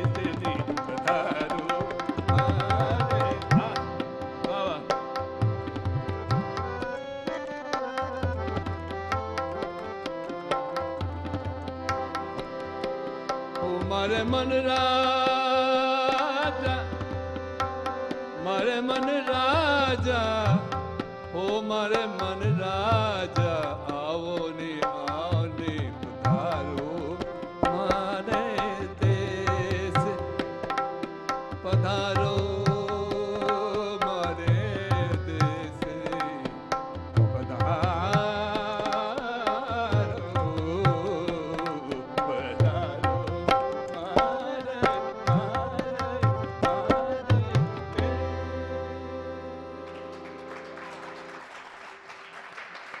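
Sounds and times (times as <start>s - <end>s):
person singing wordless runs: 0.0s - 5.1s, 37.4s - 48.8s
tabla strokes: 0.0s - 6.9s
harmonium: 0.0s - 53.0s.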